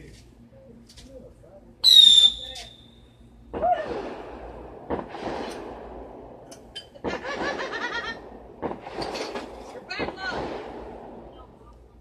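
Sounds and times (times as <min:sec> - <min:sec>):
wavering fireworks whistles: 0:01.8 - 0:05.8
fireworks bursting: 0:03.5 - 0:12.0
voices: 0:09.6 - 0:10.6.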